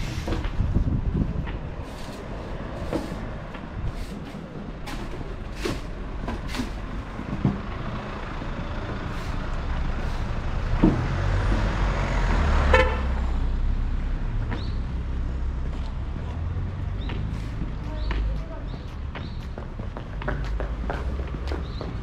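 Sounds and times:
car engine and tyre noise passing: 0:00.0 - 0:22.0
car horn toot: 0:12.7 - 0:13.1.

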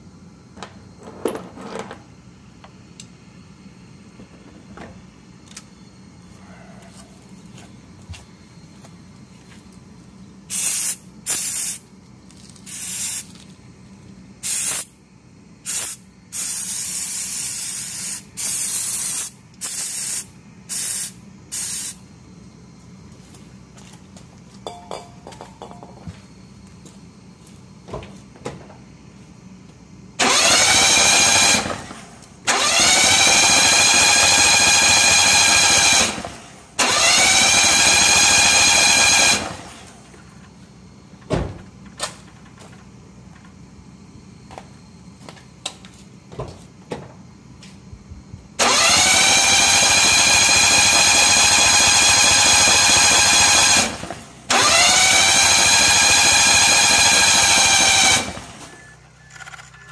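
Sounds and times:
engine cranking on starter motor: 0:30.2 - 0:40.1, 0:48.6 - 0:59.9.

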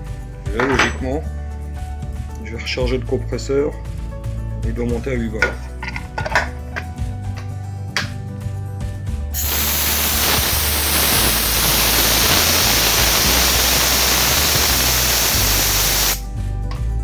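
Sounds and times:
compressed air hissing: 0:09.3 - 0:16.3.

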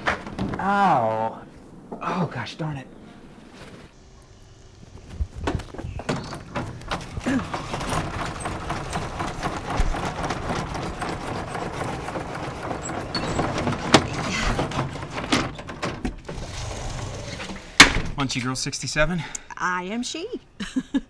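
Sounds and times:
window blind slats rattling: 0:06.1 - 0:17.8.

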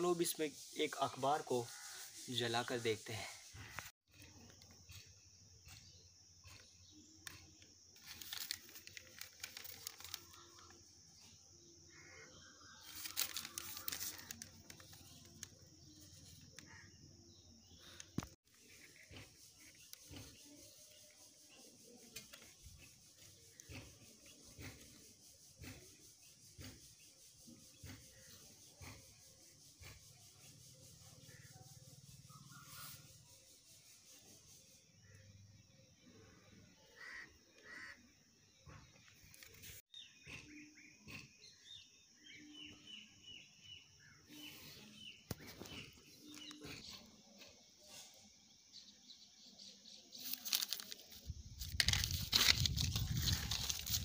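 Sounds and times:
paper and foil crinkling: 0:08.0 - 0:10.8, 0:12.8 - 0:16.6, 0:50.1 - 0:54.0
brief rustle: 0:50.2 - 0:54.0.

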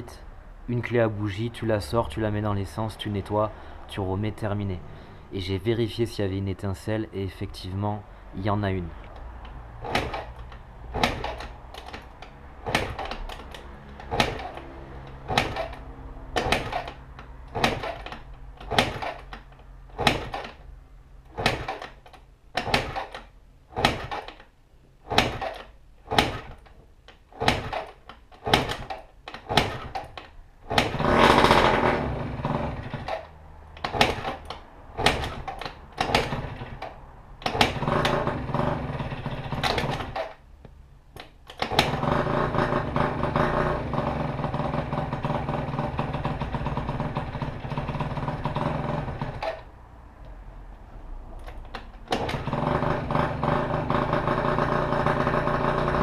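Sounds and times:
scooter kick-start strokes: 0:09.8 - 0:15.8, 0:16.4 - 0:20.6, 0:21.3 - 0:24.4, 0:25.1 - 0:26.7, 0:27.3 - 0:40.4, 0:41.2 - 0:49.7, 0:51.4 - 0:56.0
two-stroke scooter engine running: 0:14.1 - 0:14.6, 0:15.2 - 0:15.8, 0:16.4 - 0:18.1, 0:18.7 - 0:19.2, 0:20.0 - 0:20.5, 0:25.1 - 0:26.5, 0:27.4 - 0:28.9, 0:29.5 - 0:30.0, 0:30.7 - 0:33.2, 0:35.0 - 0:36.8, 0:37.5 - 0:40.3, 0:41.7 - 0:49.6, 0:52.2 - 0:56.0.

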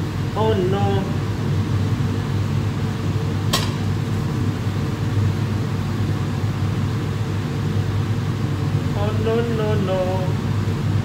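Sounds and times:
kitchen ventilation hum: 0:00.0 - 0:11.0
sharp click: 0:03.5 - 0:03.8.

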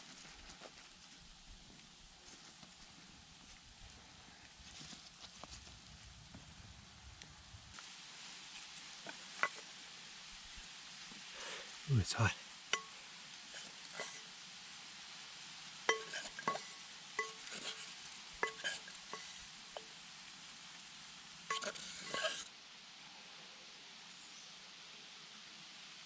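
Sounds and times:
wooden stick tapping metal pot: 0:09.4 - 0:09.6, 0:12.7 - 0:13.0, 0:13.6 - 0:14.2, 0:15.9 - 0:19.9, 0:21.5 - 0:22.5.

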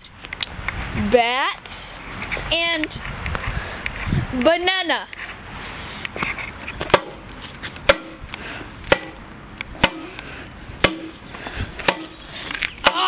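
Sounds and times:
bat striking banana on paving: 0:06.8 - 0:07.2, 0:07.8 - 0:08.2, 0:08.9 - 0:10.2, 0:10.8 - 0:11.2, 0:11.8 - 0:12.2.

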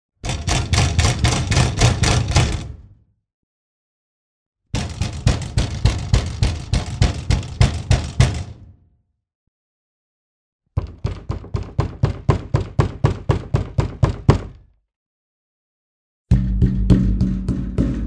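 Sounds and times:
rapid banging on hard object: 0:00.2 - 0:02.7, 0:04.8 - 0:08.6, 0:10.8 - 0:14.5, 0:16.3 - 0:18.0.

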